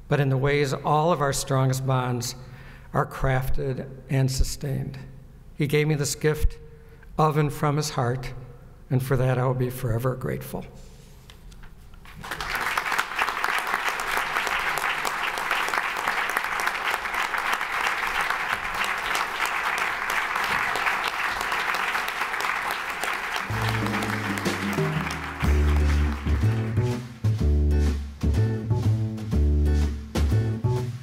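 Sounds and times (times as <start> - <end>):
audience applauding: 12.1 - 27.4
instrumental music with plucked bass: 23.4 - 31.0.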